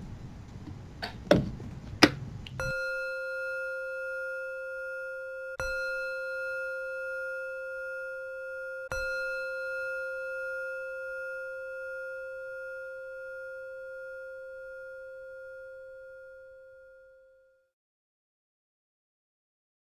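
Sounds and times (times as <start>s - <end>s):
singing bowl ringing: 2.6s - 17.7s.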